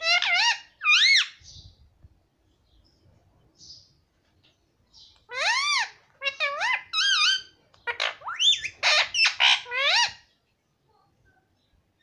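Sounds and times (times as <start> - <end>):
parakeet squawking calls: 0.0 - 1.4, 5.3 - 10.3.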